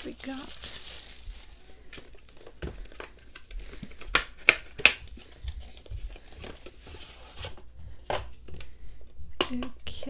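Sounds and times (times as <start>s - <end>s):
packaging rustling: 0.0s - 8.7s
sharp plastic snaps: 3.8s - 5.1s.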